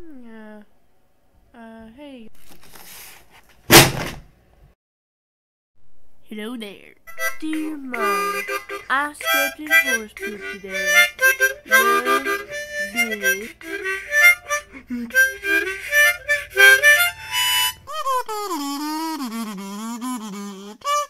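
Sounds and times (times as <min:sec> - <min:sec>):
harmonica playing: 0:07.1 - 0:21.0.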